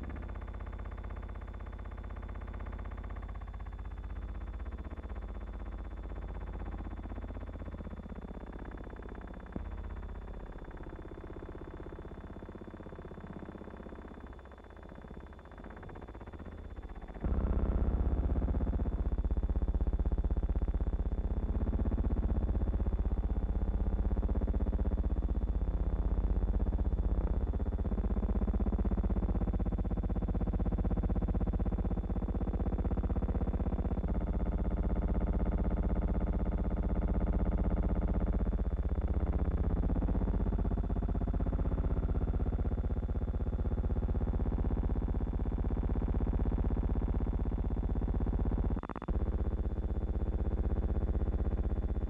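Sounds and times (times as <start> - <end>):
low buzzing hum with flutter: 0.0 - 52.0.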